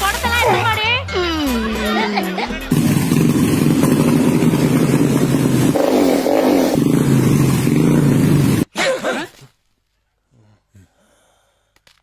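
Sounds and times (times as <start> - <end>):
vehicle engine running: 2.6 - 8.7.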